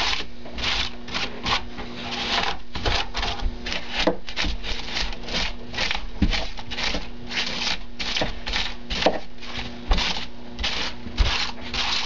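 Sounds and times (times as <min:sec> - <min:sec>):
foam being scraped: 0:00.0 - 0:12.0.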